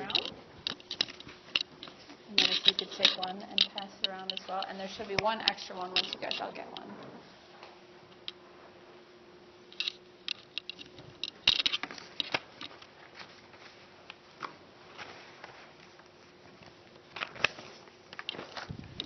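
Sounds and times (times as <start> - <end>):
faint steady hum: 0.0 - 19.0
paper rustling: 11.7 - 19.0.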